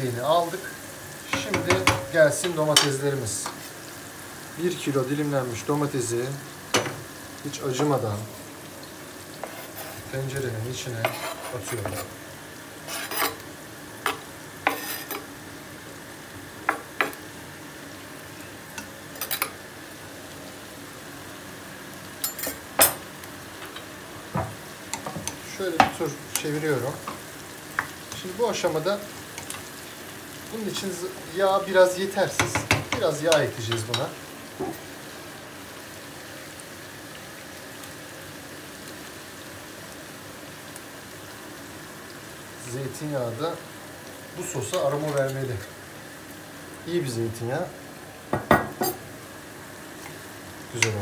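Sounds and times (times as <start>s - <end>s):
onions sizzling in oil: 0.0s - 51.0s
knife knocking and scraping board: 9.4s - 10.0s, 11.0s - 12.1s, 14.6s - 15.2s.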